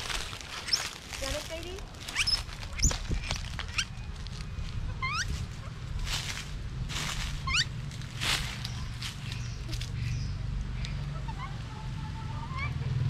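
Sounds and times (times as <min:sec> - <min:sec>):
high animal chirps: 0:00.0 - 0:01.0, 0:02.1 - 0:04.0, 0:04.9 - 0:05.4, 0:07.4 - 0:07.7
rustling bursts: 0:00.0 - 0:09.9
steady low hum: 0:00.0 - 0:13.0.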